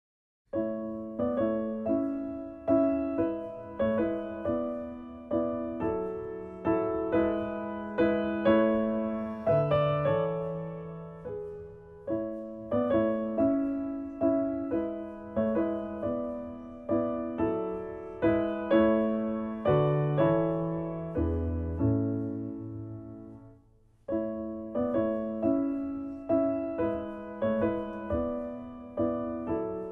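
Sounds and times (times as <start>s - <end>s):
slow piano chords: 0.5s - 29.9s.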